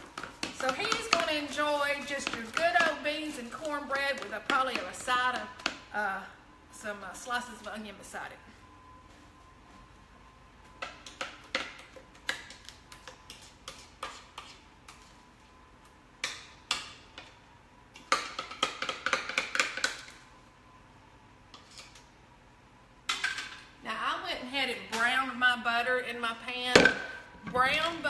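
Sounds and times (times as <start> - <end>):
faint high hum: 0.6 - 18.1.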